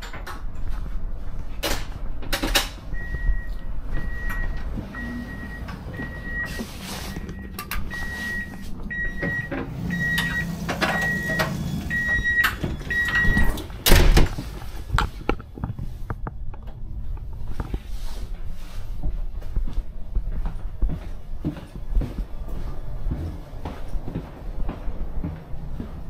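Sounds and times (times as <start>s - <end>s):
low hum: 0.2s - 26.0s
electronic warning beep: 2.9s - 13.6s.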